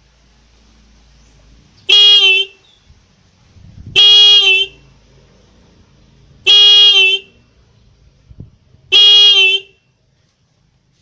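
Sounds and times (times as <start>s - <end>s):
motorcycle horn honks: 1.9s - 2.6s, 3.9s - 4.8s, 6.4s - 7.4s, 8.9s - 9.9s.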